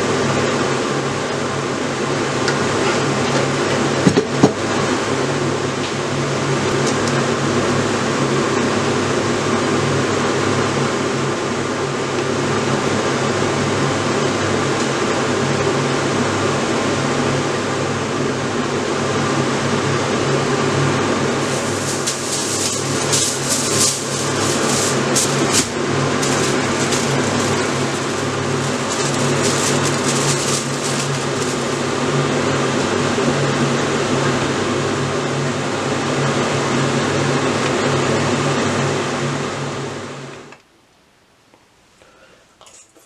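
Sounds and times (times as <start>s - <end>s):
fan humming: 20.1s - 34.0s
aluminium foil crinkling: 21.4s - 32.1s.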